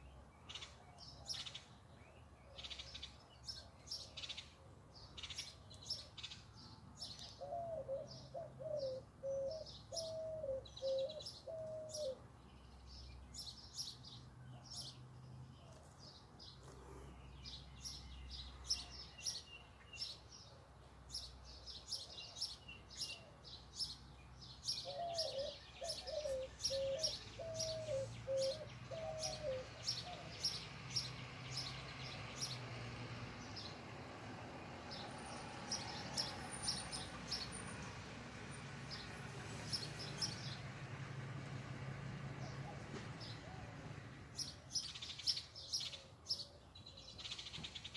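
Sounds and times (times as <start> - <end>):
birds chirping: 0.0 - 32.7.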